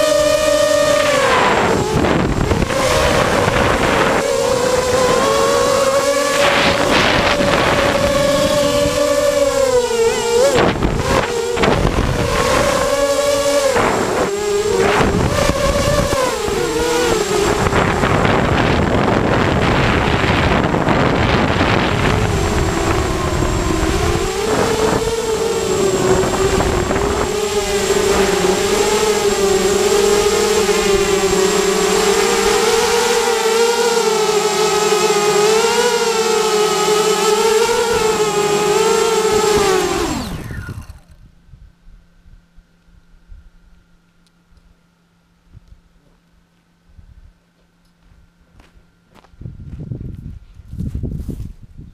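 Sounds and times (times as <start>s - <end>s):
drone motors buzzing: 0.0s - 41.3s
wind buffeting microphone: 0.0s - 42.5s, 49.3s - 51.9s.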